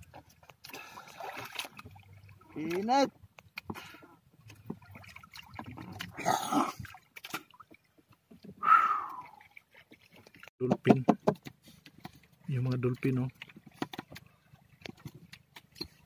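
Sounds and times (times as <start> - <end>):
water splashing and sloshing: 0.0 - 16.0.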